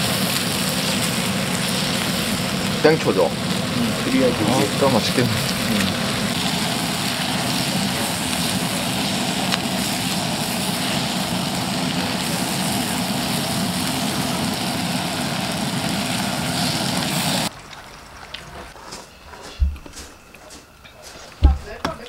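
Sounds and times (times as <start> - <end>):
gas burner rushing: 0.0 - 17.5
stir-fry sizzling: 0.0 - 22.0.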